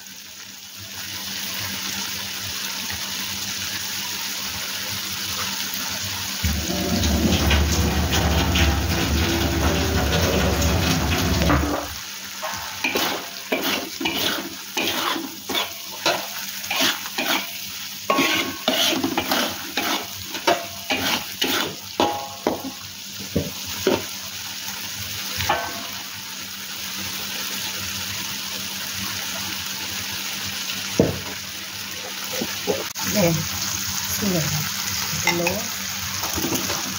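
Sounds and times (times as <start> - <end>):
metal spatula scraping a wok: 6.4 - 22.8, 25.5 - 26.1
paste sizzling: 6.4 - 24.2.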